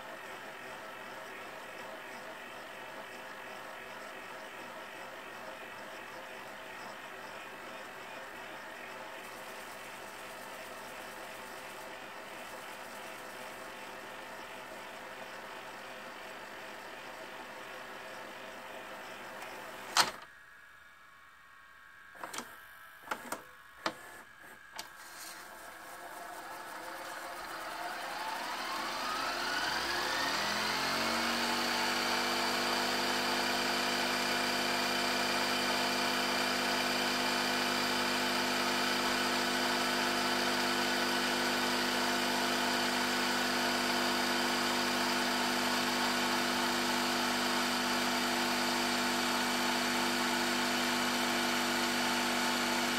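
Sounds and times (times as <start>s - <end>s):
tape deck mechanical clicks: 19.9s - 20.3s
reel motor whirring: 25.1s - 35.0s.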